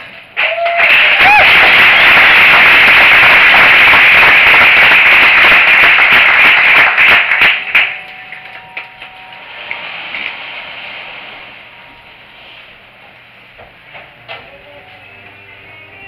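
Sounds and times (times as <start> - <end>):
audience applauding: 0.0 - 9.9.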